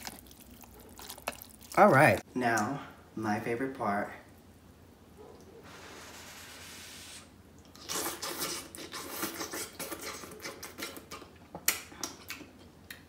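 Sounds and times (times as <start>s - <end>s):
person slurping and chewing noodles: 0.0s - 2.2s, 7.7s - 12.7s
wet clicks and smacks: 0.0s - 2.6s.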